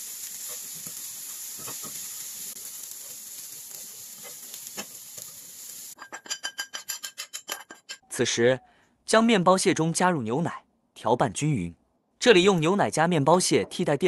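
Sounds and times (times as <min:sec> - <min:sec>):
onions sizzling in oil: 0:00.0 - 0:06.0
metal spoon scraping a pan: 0:00.4 - 0:02.1, 0:06.0 - 0:08.1.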